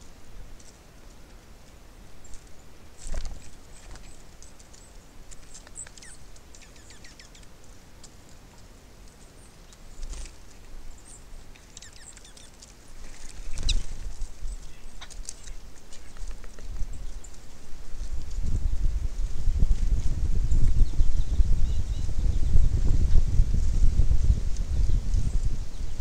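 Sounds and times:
birds pecking at a feeder: 2.2 - 18.8
high bird chirps: 5.5 - 7.5, 11.0 - 12.6.

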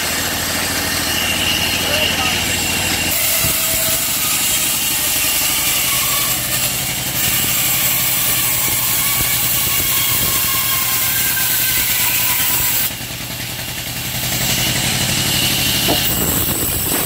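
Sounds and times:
band saw humming and hissing: 0.0 - 17.0.

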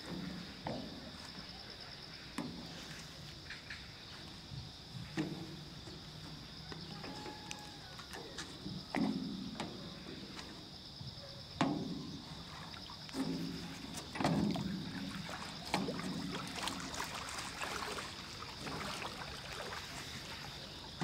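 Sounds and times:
dull knocks on rowboat: 0.0 - 1.4, 2.4 - 2.8, 5.0 - 10.6, 11.5 - 17.1
insects chirring: 0.0 - 21.0.

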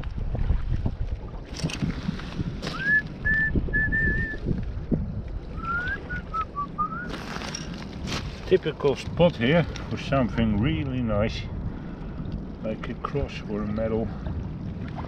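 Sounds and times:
wind rumble on microphone: 0.0 - 15.0
person whistling a slow tune: 2.7 - 4.4, 5.6 - 7.1
footsteps on gravel and glass: 7.1 - 8.4.

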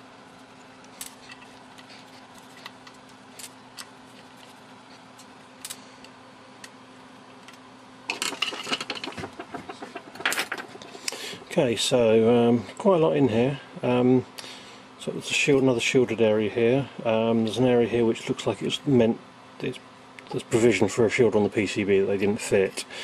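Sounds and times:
faint steady hum: 0.0 - 23.0
clattering and scraping: 8.1 - 10.9.

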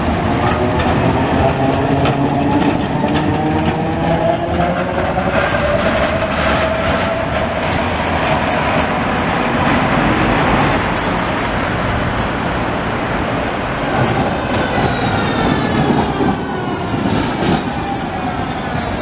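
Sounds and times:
street traffic: 0.0 - 19.0
wheels rumbling on rails: 0.0 - 19.0.

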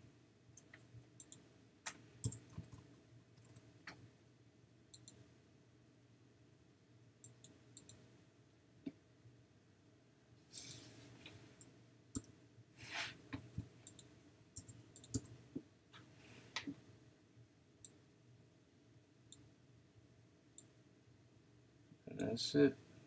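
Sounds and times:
computer mouse clicking: 0.6 - 4.0, 4.9 - 5.2, 7.2 - 8.0, 11.6 - 12.3, 13.4 - 15.3
short scraping sounds: 12.8 - 13.2.

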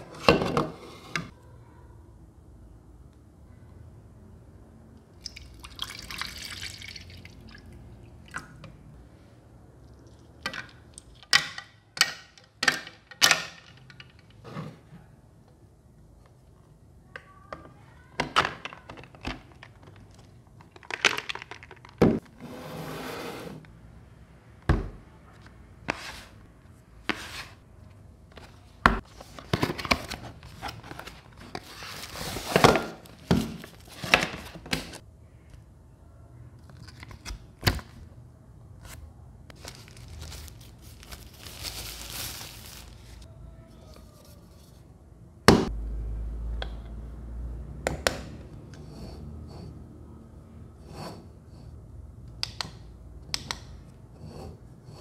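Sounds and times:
rustling: 28.4 - 35.0, 39.6 - 44.9
plastic bag crinkling: 39.6 - 43.2.

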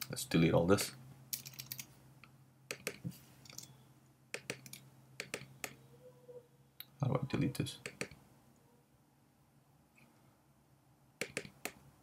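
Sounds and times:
keyboard and mouse clicks: 1.3 - 1.9, 2.7 - 3.7, 4.3 - 5.8, 7.8 - 8.2, 11.2 - 11.8.

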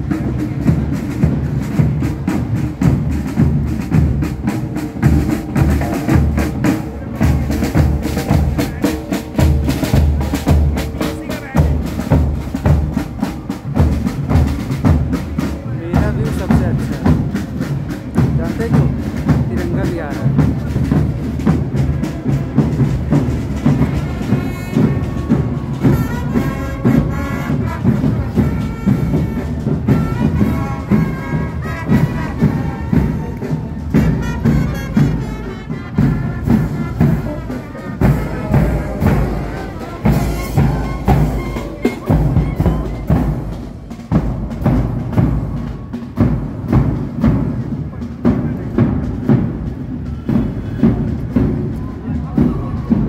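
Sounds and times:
marching brass band: 0.0 - 53.0
steady drum beat: 0.0 - 53.0.

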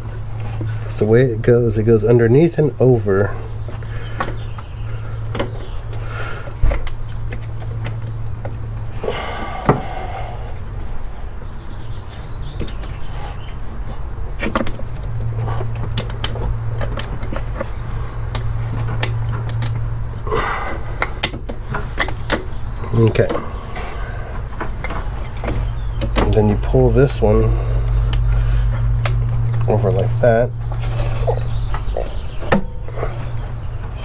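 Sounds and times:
steady low hum: 0.0 - 34.0
hands clicking and knocking on parts: 14.4 - 19.9.

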